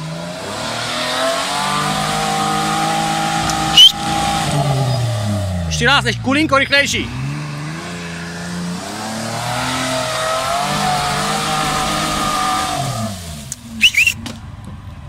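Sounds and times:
engine revving hard under load: 0.0s - 14.2s
short sharp high sounds: 3.6s - 4.0s, 13.8s - 14.2s.

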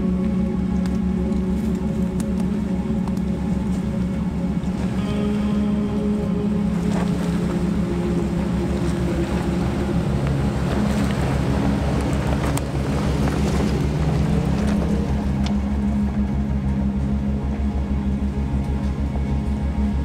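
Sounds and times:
vehicle engine running: 0.0s - 20.0s
wind noise: 0.0s - 20.0s
light ticks: 0.2s - 4.1s, 10.2s - 15.8s.

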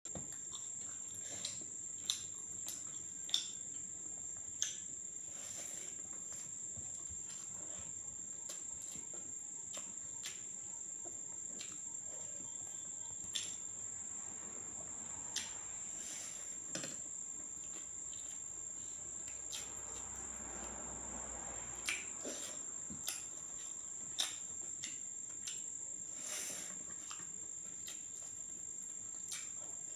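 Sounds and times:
crickets trilling: 0.2s - 29.9s
person eating by hand: 21.8s - 29.9s.

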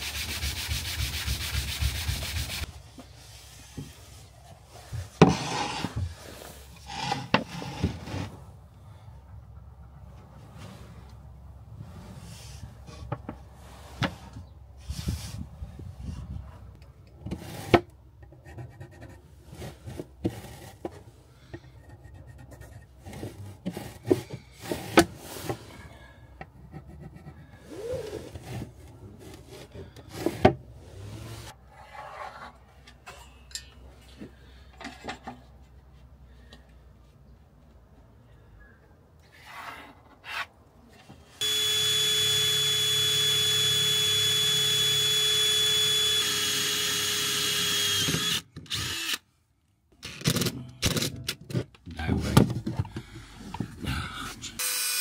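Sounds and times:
wood rubbing and scraping: 0.0s - 8.5s, 18.5s - 21.2s, 21.8s - 25.8s.

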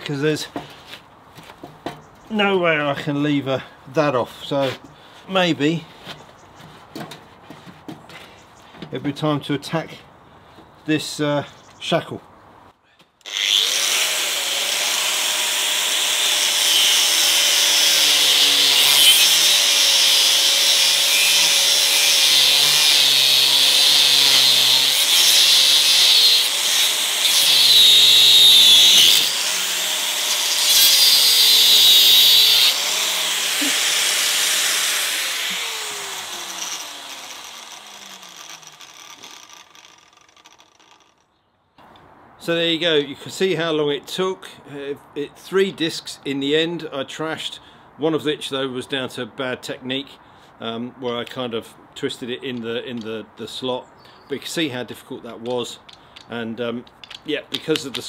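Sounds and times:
angle grinder cutting metal: 13.2s - 41.2s.

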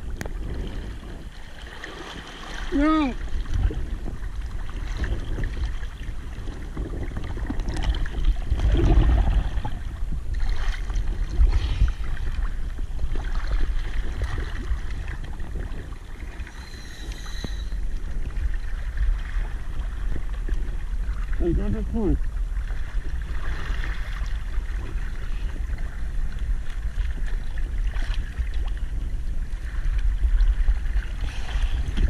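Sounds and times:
water splashing against boat hull: 0.0s - 16.6s
low rumble of surging water: 0.0s - 32.0s
water gurgling: 0.0s - 32.0s.

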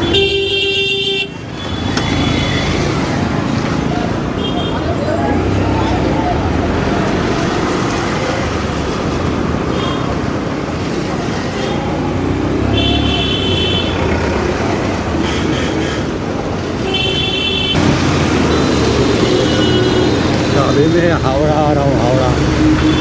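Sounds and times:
vehicle horns honking: 0.0s - 2.7s, 12.7s - 14.1s, 16.8s - 17.9s, 18.8s - 20.6s, 22.7s - 23.0s
city street traffic: 0.0s - 23.0s
motorbike engine and road noise: 1.2s - 23.0s.

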